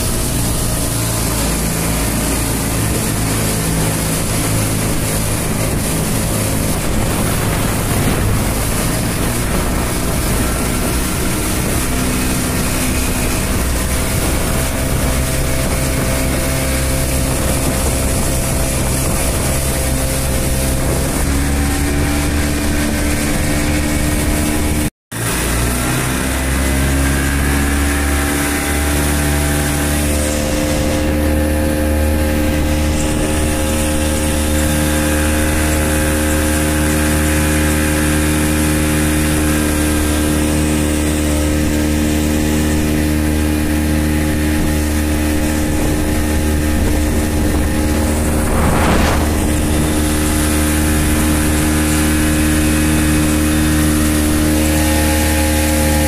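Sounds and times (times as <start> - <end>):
motorboat engine running: 0.0 - 56.0
water rushing along hull: 0.0 - 56.0
brief rush of noise: 47.3 - 51.4.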